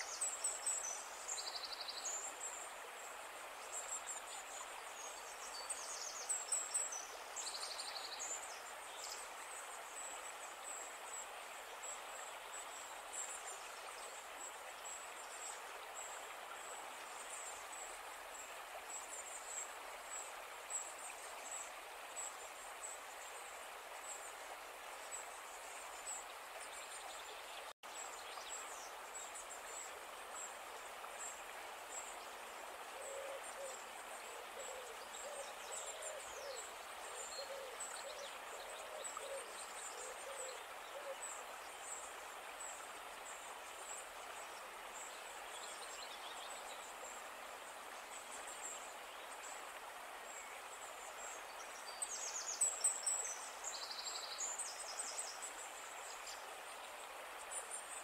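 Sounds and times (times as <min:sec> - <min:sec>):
bird hooting coos: 0:32.9 - 0:41.2.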